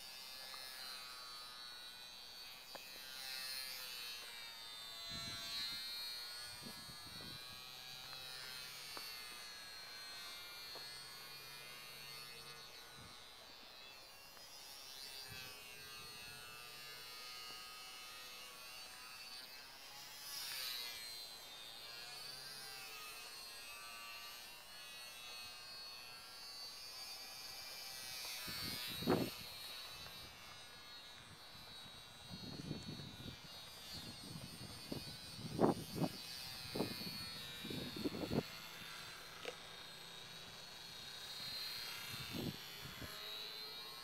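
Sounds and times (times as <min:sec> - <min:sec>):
model plane motor buzzing: 0:00.0 - 0:44.0.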